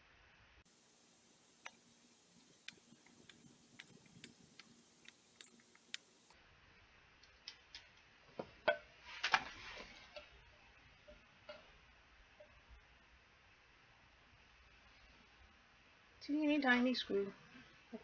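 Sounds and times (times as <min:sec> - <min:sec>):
screwdriver clicking on plastic: 0:02.6 - 0:06.1.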